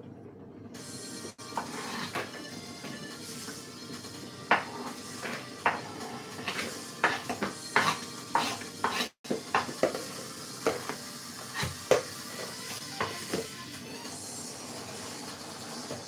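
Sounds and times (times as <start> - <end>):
knife chopping on wooden board: 6.5 - 10.0.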